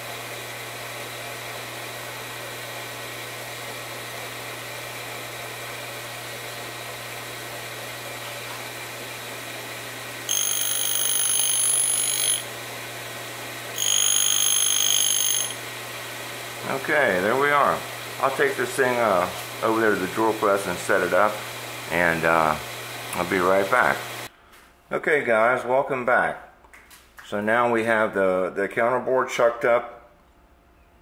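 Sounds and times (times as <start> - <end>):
grinder humming: 8.4 - 24.3
grinding wheel screech: 10.3 - 12.4, 13.8 - 15.6.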